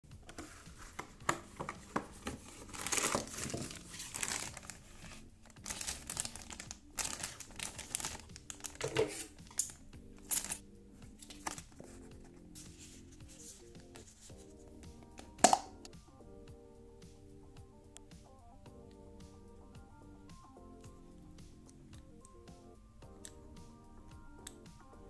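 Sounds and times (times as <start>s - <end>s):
cardboard box opening: 0.2s - 9.4s
plastic bag crinkling: 2.2s - 10.6s.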